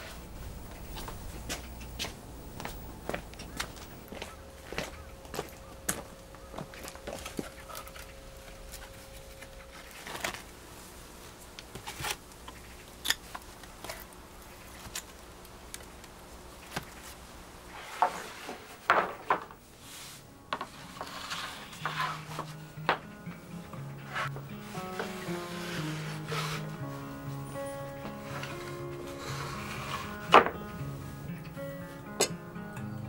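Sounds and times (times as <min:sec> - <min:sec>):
wood rubbing and knocking: 0:17.8 - 0:19.6, 0:20.5 - 0:23.1, 0:24.1 - 0:27.0, 0:28.0 - 0:30.8
soft music: 0:19.8 - 0:33.0.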